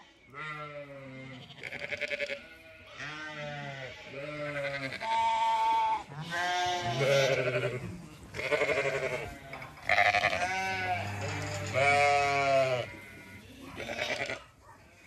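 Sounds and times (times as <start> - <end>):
sheep bleating: 0.0 - 15.0.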